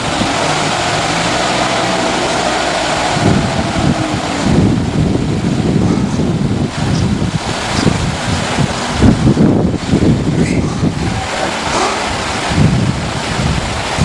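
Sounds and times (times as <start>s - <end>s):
steady whine: 0.0s - 6.8s
forklift engine running: 0.0s - 10.0s
wind buffeting microphone: 0.0s - 14.0s.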